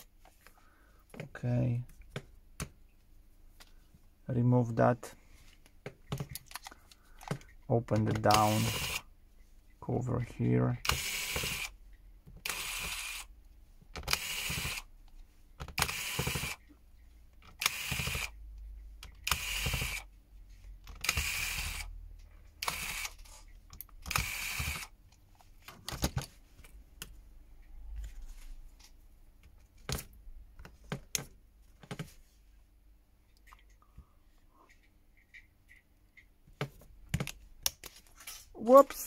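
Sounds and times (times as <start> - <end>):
electric screwdriver whirring: 8.3 - 9.0, 10.8 - 11.7, 12.4 - 13.3, 14.0 - 14.9, 15.7 - 16.6, 17.6 - 18.4, 19.2 - 20.1, 20.9 - 21.9, 22.6 - 23.3, 24.0 - 24.9.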